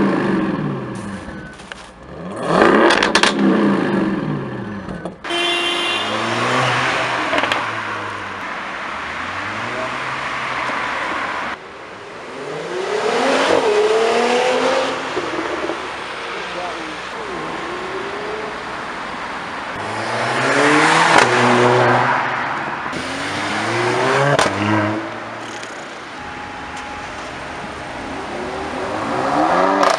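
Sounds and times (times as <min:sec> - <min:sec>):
car engine revving with crackles: 0:00.0 - 0:29.9
car pulling away: 0:06.0 - 0:29.9
car accelerating past: 0:26.9 - 0:29.9.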